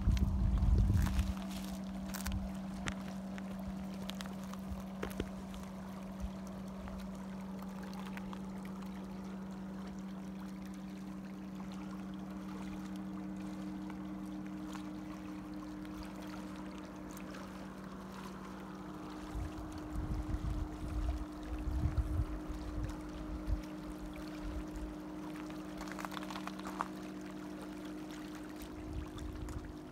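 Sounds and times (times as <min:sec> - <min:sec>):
wind buffeting microphone: 0:00.0 - 0:01.6, 0:19.2 - 0:24.9
steady low hum: 0:00.0 - 0:29.9.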